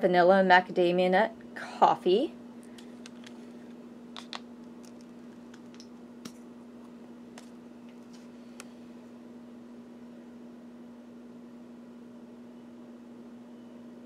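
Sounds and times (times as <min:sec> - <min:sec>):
steady low hum: 0:00.0 - 0:14.0
small clicks and taps: 0:02.7 - 0:03.4.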